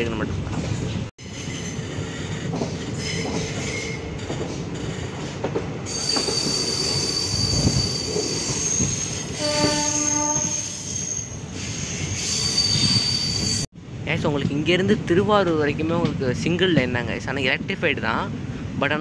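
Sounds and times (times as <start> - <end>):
train coaches rolling on rails: 0.1 - 13.7
steel wheels squealing: 1.2 - 13.7
train horn blast: 9.4 - 10.9.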